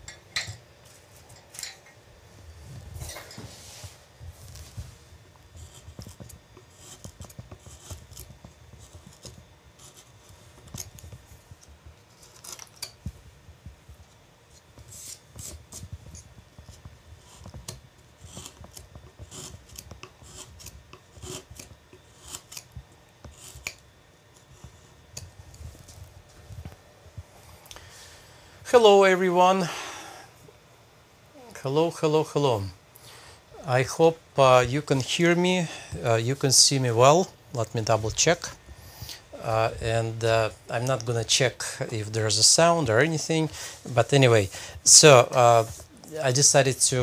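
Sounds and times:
gouge cutting and scraping wood: 5.4s - 11.1s, 14.6s - 23.8s.

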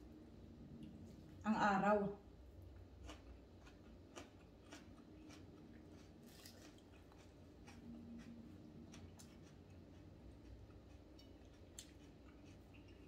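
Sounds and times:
low room hum: 0.0s - 13.0s
chewing and wet mouth clicks: 3.0s - 13.0s.

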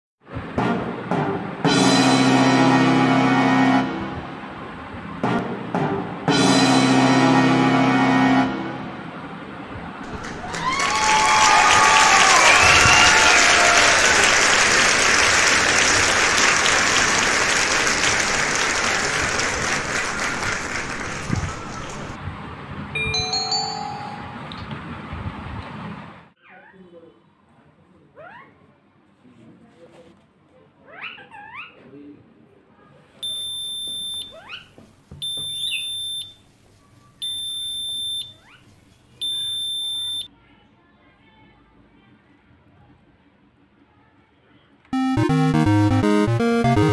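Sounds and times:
crowd applauding: 10.0s - 22.2s
electronic alarm beeps: 33.2s - 34.3s, 35.2s - 36.4s, 37.2s - 38.3s, 39.2s - 40.3s, 45.0s - 46.9s.

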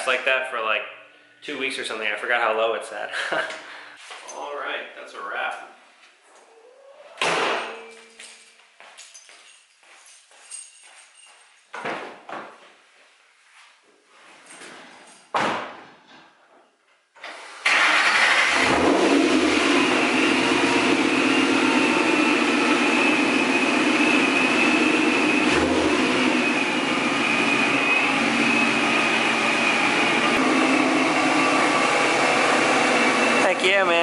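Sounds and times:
engine cranking: 17.6s - 19.1s.

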